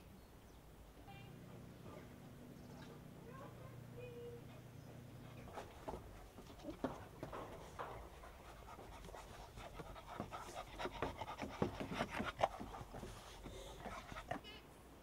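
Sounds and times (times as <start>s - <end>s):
dog panting: 4.4s - 14.6s.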